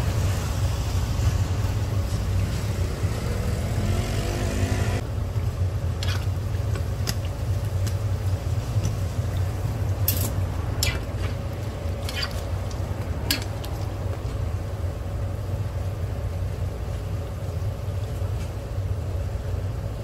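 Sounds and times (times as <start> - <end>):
low rumble: 0.0 - 5.9.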